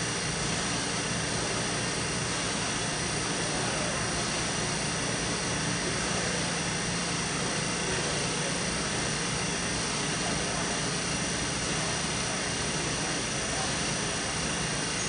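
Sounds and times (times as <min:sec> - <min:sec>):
thin high whine: 0:13.0 - 0:15.0.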